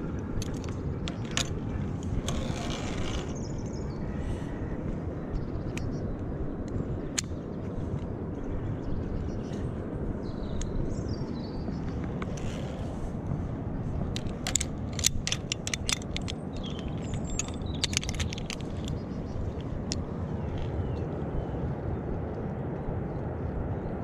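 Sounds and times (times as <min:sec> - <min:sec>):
wind rumble on microphone: 0:00.0 - 0:24.0
metallic clicks of carabiners: 0:00.4 - 0:01.6, 0:14.1 - 0:20.0.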